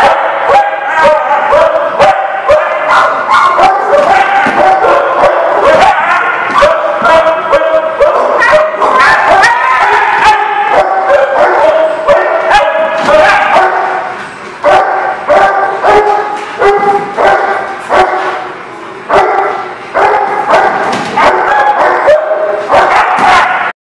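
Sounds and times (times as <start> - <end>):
dog barking: 0.0 - 18.4, 19.1 - 23.7.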